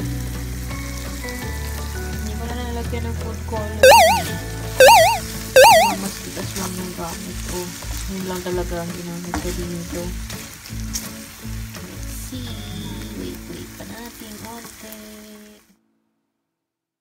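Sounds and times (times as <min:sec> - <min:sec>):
chicken sizzling in a pan: 0:00.0 - 0:03.3, 0:06.5 - 0:15.6
warbling sound effect: 0:03.8 - 0:06.0.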